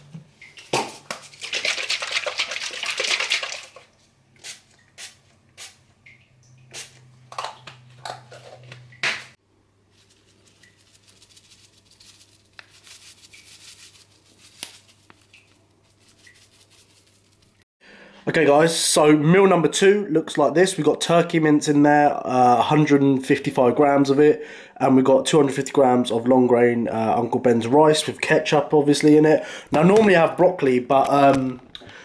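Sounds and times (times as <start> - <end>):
seasoning shaker rustling and ticking: 1.2 - 5.2, 9.9 - 17.6.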